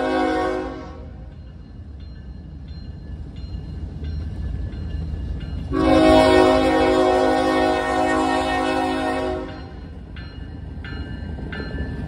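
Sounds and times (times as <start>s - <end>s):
locomotive air horn: 0.0s - 1.2s, 5.7s - 9.6s.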